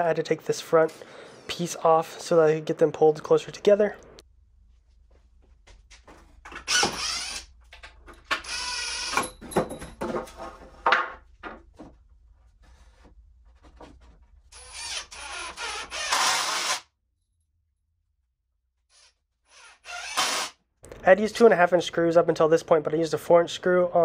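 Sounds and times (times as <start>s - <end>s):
cordless drill driving screws: 6.6s - 7.5s, 8.3s - 9.3s, 14.6s - 16.9s, 19.0s - 20.6s.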